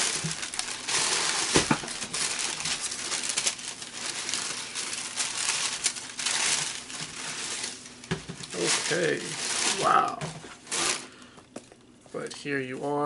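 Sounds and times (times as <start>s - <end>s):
packaging crinkling and rustling: 0.0s - 13.0s.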